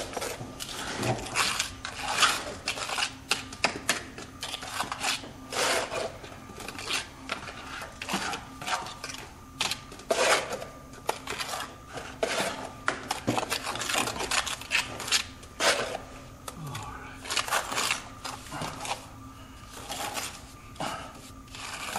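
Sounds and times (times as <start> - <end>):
hand tool scraping brick: 4.4 - 9.0, 10.1 - 12.7, 13.3 - 16.0.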